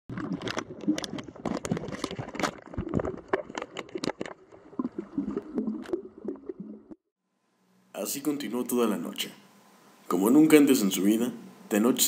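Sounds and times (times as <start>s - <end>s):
low underwater rumble: 0.1s - 7.1s
underwater bubbles clicking and crackling: 0.1s - 7.1s.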